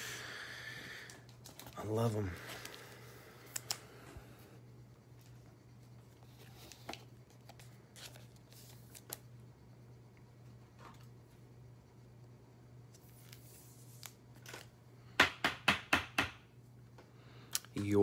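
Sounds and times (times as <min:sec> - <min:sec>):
low steady hum: 0:00.0 - 0:15.2, 0:16.4 - 0:18.0
cards clicking and rustling: 0:01.2 - 0:01.8, 0:13.0 - 0:14.7.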